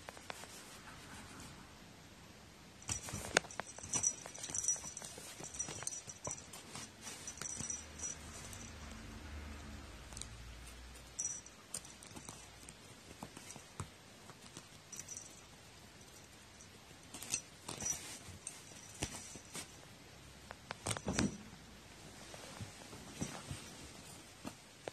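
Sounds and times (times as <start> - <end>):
collar bell tinkling: 2.8 - 9.3, 11.0 - 12.4, 14.9 - 19.6.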